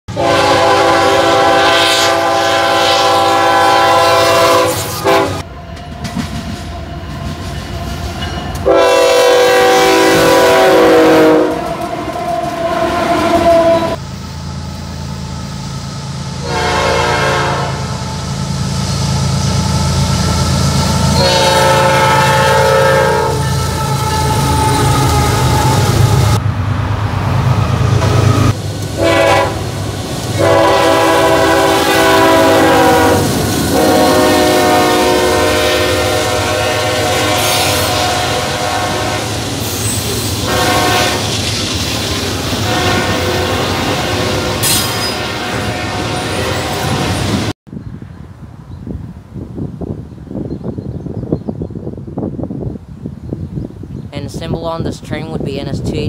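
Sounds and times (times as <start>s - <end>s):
locomotive air horns: 0.1s - 5.5s, 8.6s - 14.0s, 16.4s - 18.0s, 19.6s - 26.4s, 28.3s - 41.4s, 42.5s - 47.5s
engine and train rumble: 0.1s - 56.0s.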